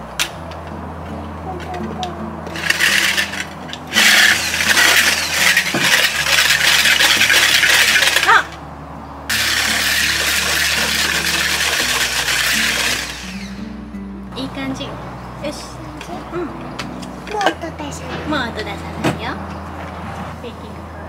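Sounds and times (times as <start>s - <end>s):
electric hand whisk in glass bowl: 9.3s - 13.6s.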